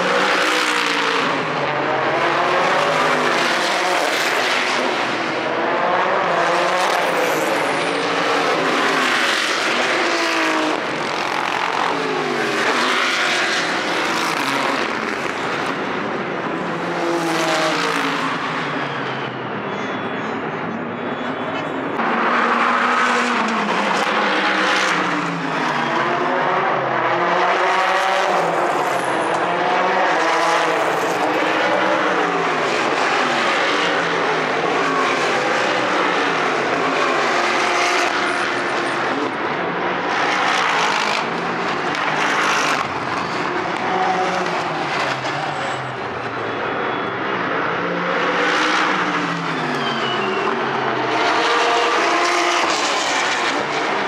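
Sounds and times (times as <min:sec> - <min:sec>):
race cars passing by: 0:00.0 - 0:54.0.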